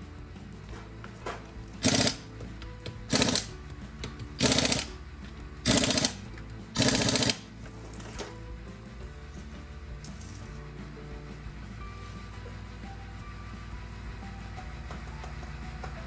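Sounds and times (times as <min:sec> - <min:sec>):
background music: 0:00.0 - 0:16.0
pneumatic impact wrench bursts: 0:01.8 - 0:02.2, 0:03.1 - 0:03.5, 0:04.4 - 0:05.0, 0:05.6 - 0:07.5.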